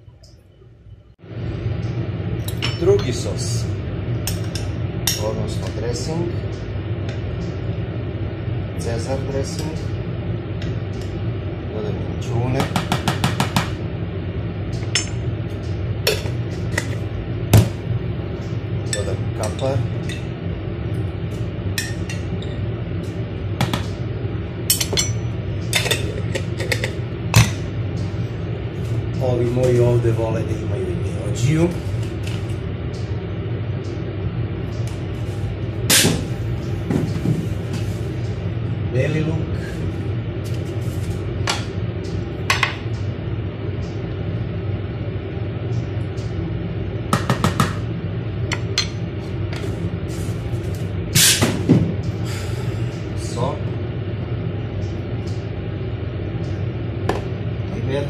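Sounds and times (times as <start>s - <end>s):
low background hum: 0.0s - 58.0s.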